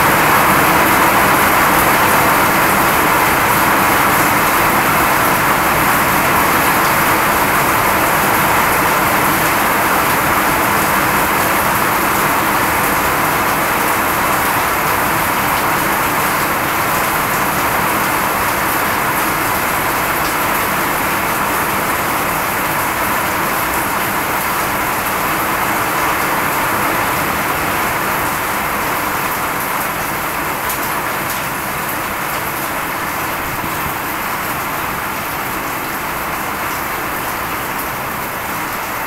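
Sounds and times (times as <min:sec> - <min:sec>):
steady rain falling: 0:00.0 - 0:39.0.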